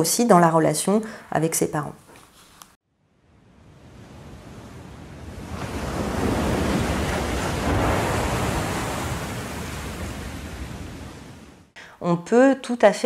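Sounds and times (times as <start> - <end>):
sea waves washing on shore: 3.5 - 11.7.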